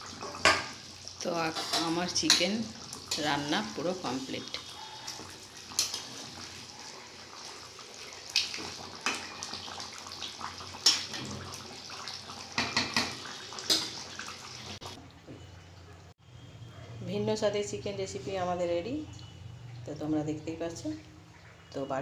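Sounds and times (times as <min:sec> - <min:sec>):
curry bubbling and popping: 0:00.0 - 0:15.0.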